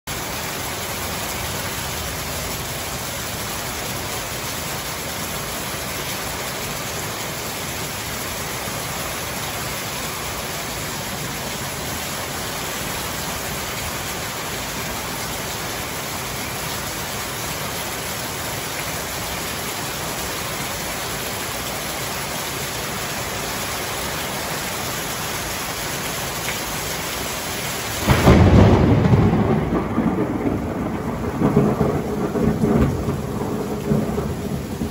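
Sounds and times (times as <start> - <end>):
heavy rain on plants and paving: 0.0 - 34.9
low rumble of thunder: 28.0 - 34.9.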